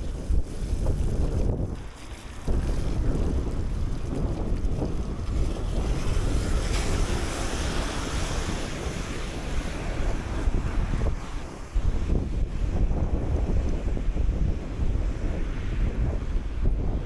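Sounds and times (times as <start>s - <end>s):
wind buffeting microphone: 0.0s - 17.0s
tyres hissing on wet road: 0.1s - 12.7s.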